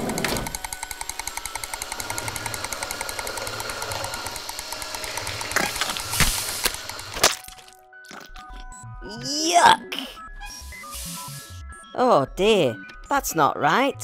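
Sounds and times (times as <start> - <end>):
mechanical rattle: 0.0 - 7.2
steady whining tones: 0.0 - 7.2.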